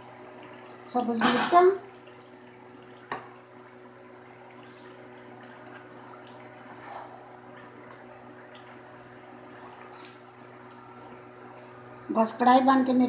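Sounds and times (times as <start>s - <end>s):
soft scrape: 6.7s - 7.2s.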